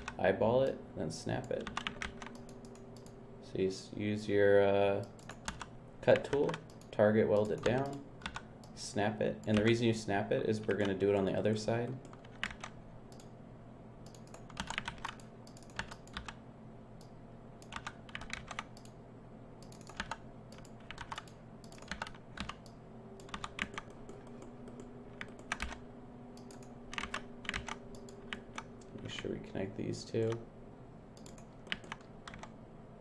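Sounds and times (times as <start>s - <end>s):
low steady hum: 0.0s - 33.0s
computer keyboard keys clicking: 1.4s - 3.2s, 5.0s - 8.4s, 10.6s - 11.0s, 12.0s - 13.3s, 14.0s - 16.4s, 17.0s - 19.0s, 19.6s - 25.8s, 26.4s - 29.2s, 31.2s - 32.5s.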